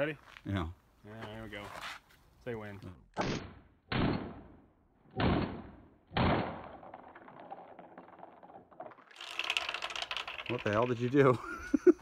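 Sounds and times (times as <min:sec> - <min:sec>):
pistol shots: 0:03.2 - 0:04.5.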